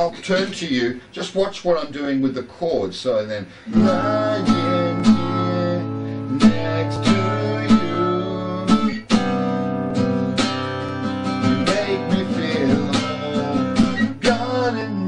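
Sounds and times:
guitar strummed chords: 3.7 - 15.0.

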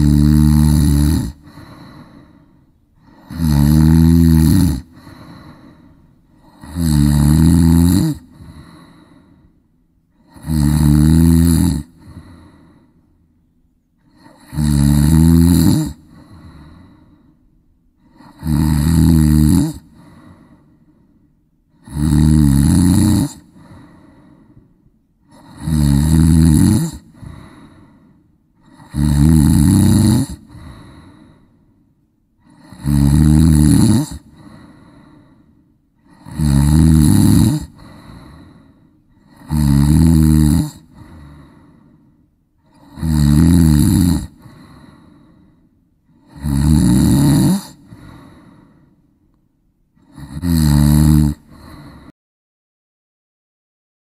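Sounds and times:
person snoring: 0.0 - 13.0, 14.0 - 17.4, 18.0 - 21.0, 21.7 - 31.7, 32.4 - 49.0, 50.0 - 52.1
faint breath: 1.3 - 3.4, 4.9 - 6.7, 8.2 - 10.4, 11.9 - 14.4, 16.0 - 18.4, 19.8 - 21.8, 23.4 - 25.6, 27.0 - 28.9, 30.4 - 32.6, 34.2 - 36.3, 37.6 - 39.5, 40.8 - 43.0, 44.3 - 46.3, 47.7 - 49.4, 51.4 - 52.1.

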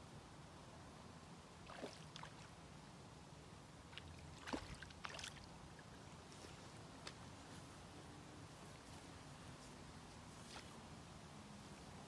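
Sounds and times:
small water splashes: 1.6 - 2.6, 3.8 - 6.1.

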